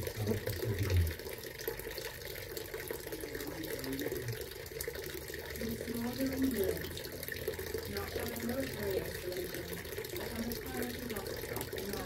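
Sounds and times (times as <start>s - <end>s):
fountain water trickling: 0.0s - 12.0s.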